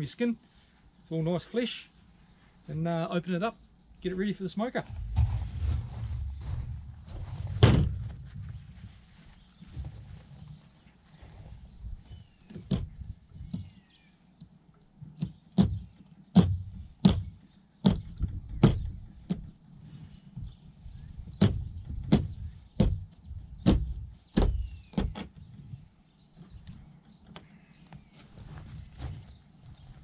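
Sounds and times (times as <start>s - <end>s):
wind rumble on microphone: 4.9s - 9.0s, 17.9s - 19.5s.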